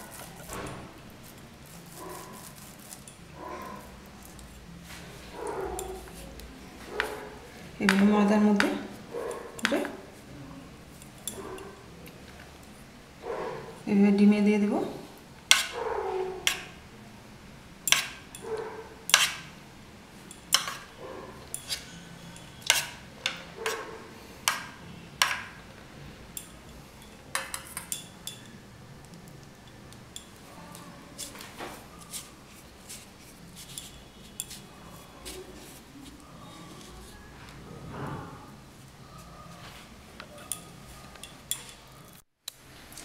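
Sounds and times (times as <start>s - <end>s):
spoon clinking against a bowl: 20.3s - 23.8s, 26.3s - 28.6s, 33.6s - 34.7s, 40.4s - 41.9s.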